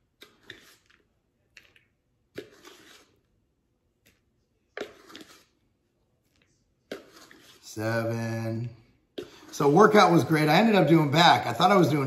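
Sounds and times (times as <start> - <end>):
plastic scoop scraping powder: 0.0 - 3.3, 4.7 - 5.6, 6.9 - 7.8.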